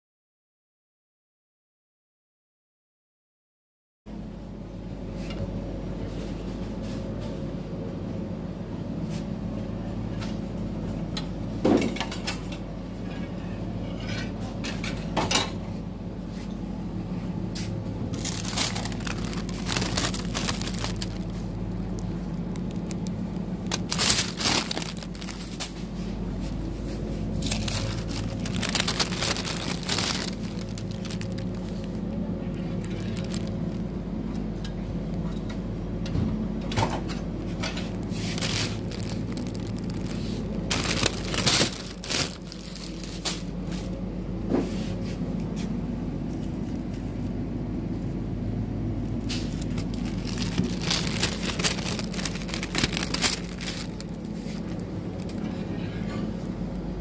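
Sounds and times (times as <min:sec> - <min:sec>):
low refrigeration hum: 0:04.1 - 0:57.0
rustling and clattering: 0:17.6 - 0:32.0, 0:37.5 - 0:43.9, 0:49.2 - 0:56.5.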